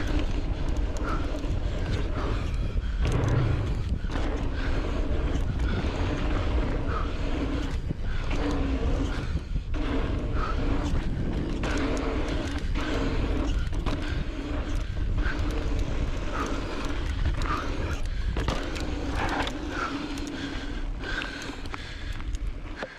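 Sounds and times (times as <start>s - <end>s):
bike clicks and rattles: 0.0s - 22.9s
electric bike motor whining: 0.0s - 22.9s
tyres on dirt trail: 0.0s - 22.9s
wind rushing on camera: 0.0s - 22.9s.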